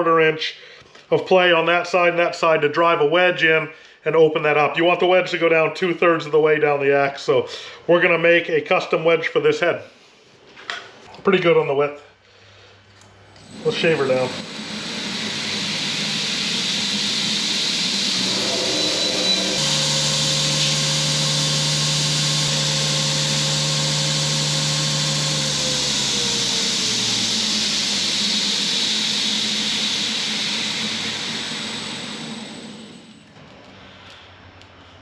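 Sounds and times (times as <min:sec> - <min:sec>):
motor hum: 0:13.3 - 0:33.2
power tool machine hiss: 0:13.5 - 0:33.2.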